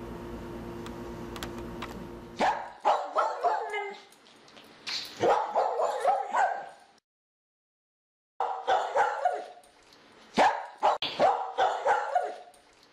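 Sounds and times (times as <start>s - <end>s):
dog barking: 2.4s - 4.1s, 5.2s - 6.8s, 8.4s - 9.6s, 10.4s - 12.5s.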